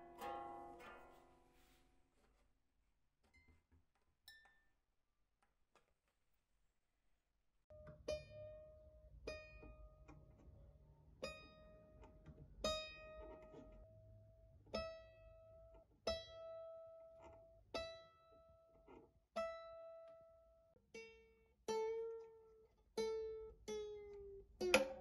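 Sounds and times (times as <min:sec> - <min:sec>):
mandolin string plucked: 0:00.0 - 0:01.8, 0:07.7 - 0:14.1, 0:23.0 - 0:25.0.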